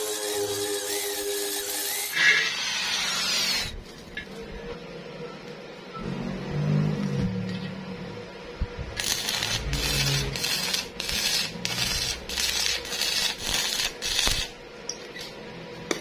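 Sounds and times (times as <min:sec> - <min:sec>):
welding arc crackling: 0:00.0 - 0:04.1, 0:08.9 - 0:14.6.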